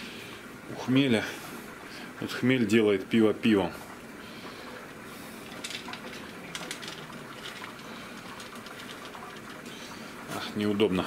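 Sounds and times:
liquid boiling and bubbling: 0:00.0 - 0:11.0
mesh bag clicks and rustles: 0:05.5 - 0:09.7.

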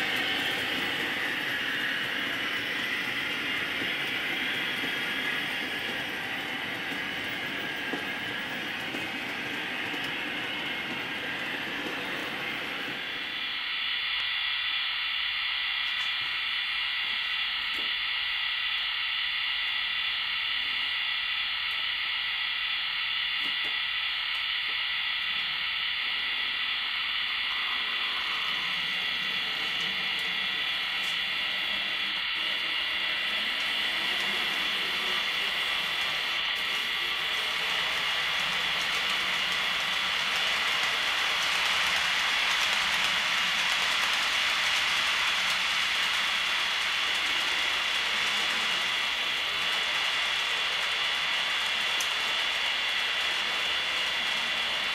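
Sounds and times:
model train rattling on track: 0:00.0 - 0:13.3, 0:27.5 - 0:54.9
steady hiss with high whine: 0:00.0 - 0:54.9.

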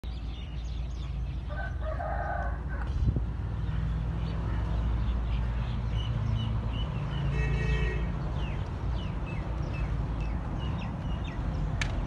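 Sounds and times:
rooster crowing: 0:01.5 - 0:02.8.

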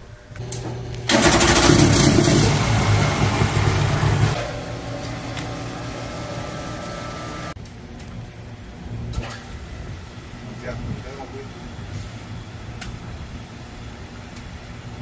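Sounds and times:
water pump engine running: 0:01.0 - 0:07.5.

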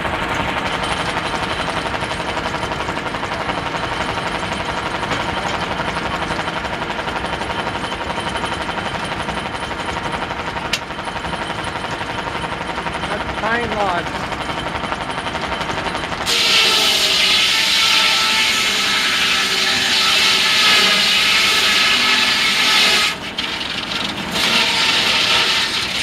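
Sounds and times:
circular saw spinning: 0:12.8 - 0:26.0
saw cutting through log: 0:15.9 - 0:26.0.

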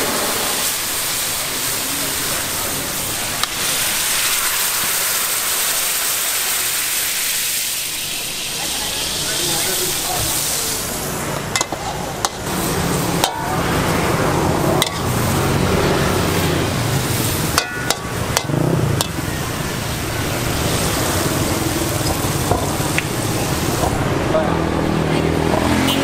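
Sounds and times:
hot oil sizzling in a wok: 0:00.0 - 0:25.8
metal spatula clacking against wok: 0:11.5 - 0:12.5, 0:14.8 - 0:15.1, 0:17.6 - 0:19.2.

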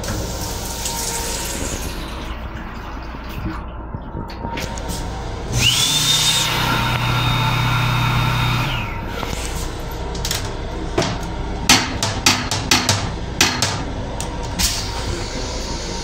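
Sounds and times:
hand dryer blowing: 0:05.5 - 0:09.6.

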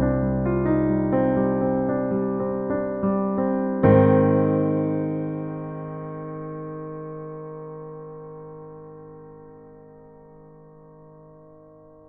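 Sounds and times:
held piano chord: 0:00.0 - 0:12.0.

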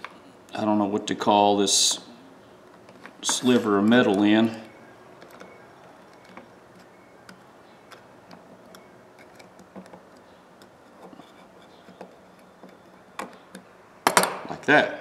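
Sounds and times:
pliers clicking and scraping metal: 0:05.2 - 0:13.6.

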